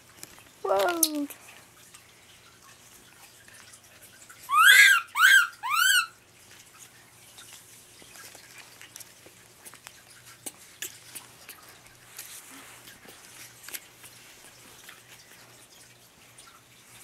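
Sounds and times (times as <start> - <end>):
faint clicks and rustles: 0.0 - 4.4, 6.4 - 17.0
infant monkey shrill calls: 4.5 - 6.2.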